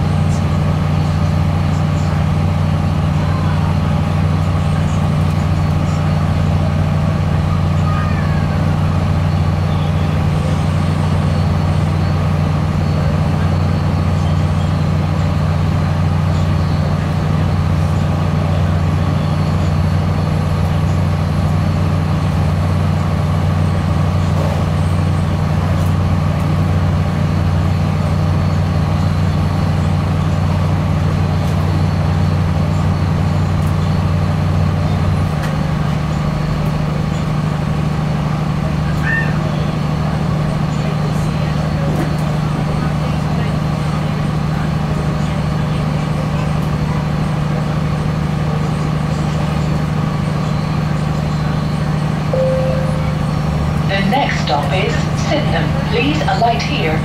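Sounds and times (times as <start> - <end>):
train and air conditioning drone: 0.0 - 57.0
low hum: 52.3 - 57.0.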